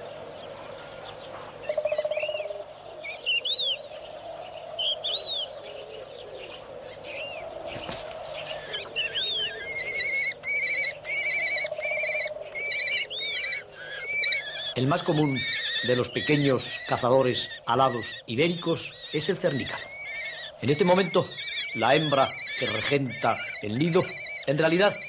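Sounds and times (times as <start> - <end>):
kestrels shrill calls: 7.1 - 25.0.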